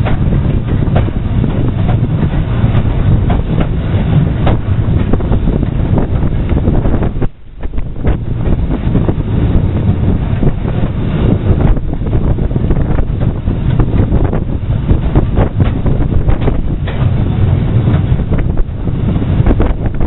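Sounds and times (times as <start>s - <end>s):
wagon knocks and rattles: 0.0s - 6.9s
train running noise: 0.0s - 20.0s
wind buffeting microphone: 0.0s - 20.0s.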